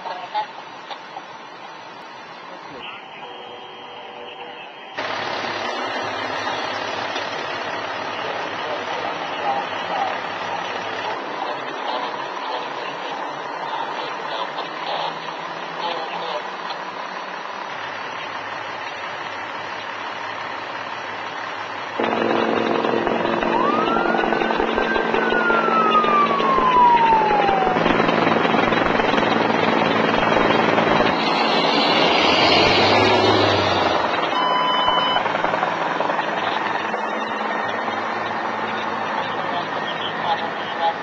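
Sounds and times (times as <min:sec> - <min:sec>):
helicopter hovering overhead: 0:05.0 - 0:41.0
siren wail: 0:22.0 - 0:41.0
short beep: 0:34.4 - 0:35.2.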